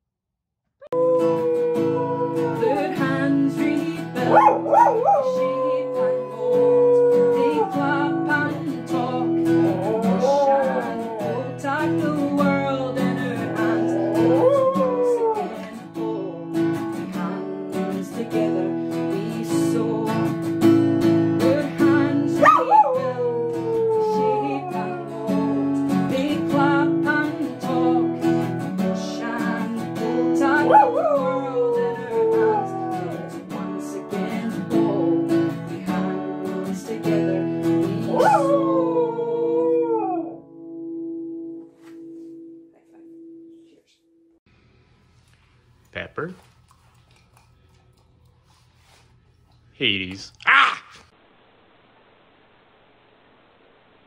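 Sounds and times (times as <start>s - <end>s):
dog howling: 0.8s - 3.4s, 4.2s - 12.7s, 13.4s - 15.7s, 22.2s - 25.8s, 30.4s - 33.4s, 38.0s - 40.4s, 50.4s - 51.1s
acoustic guitar strumming: 1.0s - 38.5s.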